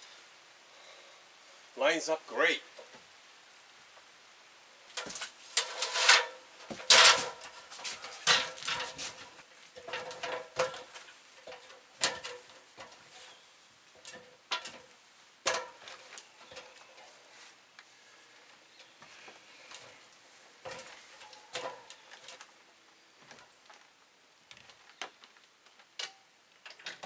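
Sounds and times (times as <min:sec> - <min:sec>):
metal ladder clanking: 0:04.9 - 0:17.1, 0:20.6 - 0:22.4.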